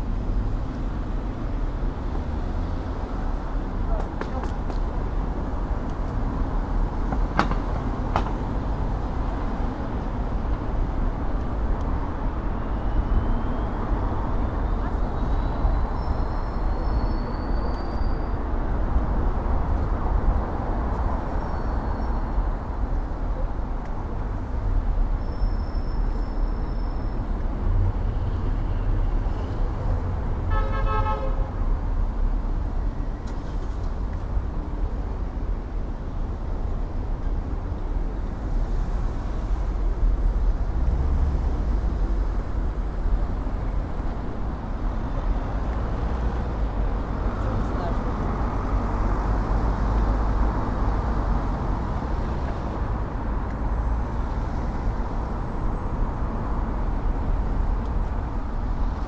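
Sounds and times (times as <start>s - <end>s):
city traffic noise: 0.0s - 59.0s
car horn: 30.5s - 31.6s.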